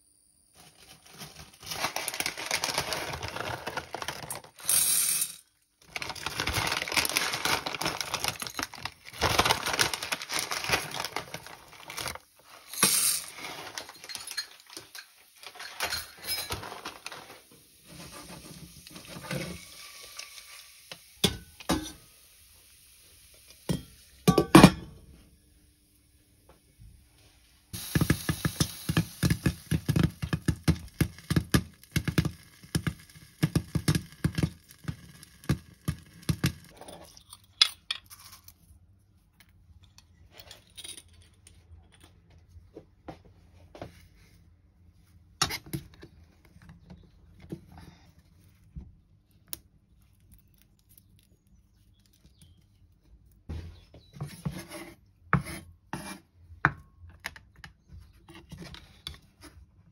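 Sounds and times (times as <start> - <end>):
popcorn popping in a pot: 18.3 - 22.1, 27.8 - 36.8.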